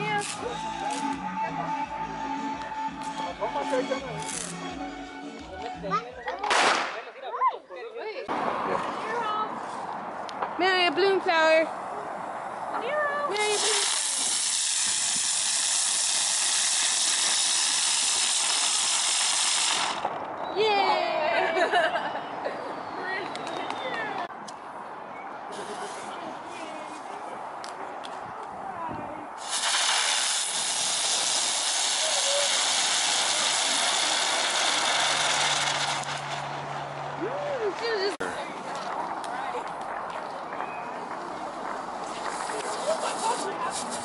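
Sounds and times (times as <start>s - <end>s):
ground firework hissing: 4.2s - 4.6s, 13.3s - 20.2s, 25.5s - 26.2s, 29.4s - 36.6s, 42.0s - 44.0s.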